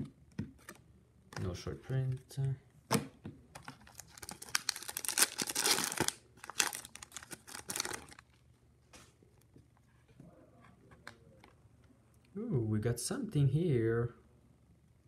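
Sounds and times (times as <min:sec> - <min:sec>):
plastic wrapper crinkling: 0:03.6 - 0:08.4.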